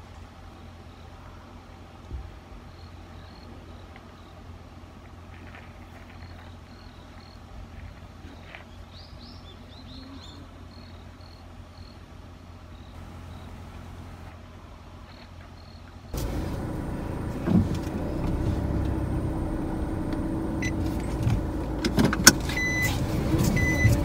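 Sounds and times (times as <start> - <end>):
low steady hum: 0.0 - 24.0
insect chirping: 6.1 - 7.4, 10.7 - 12.0, 15.1 - 15.9
bird chirping: 12.7 - 13.8.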